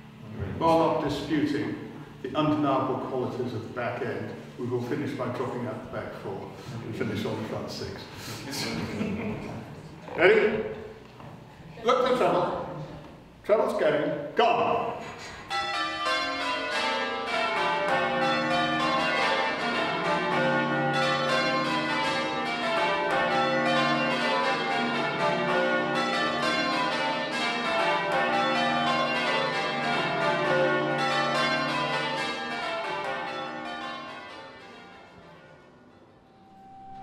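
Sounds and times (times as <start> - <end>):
church bells change ringing: 14.9 - 37.0.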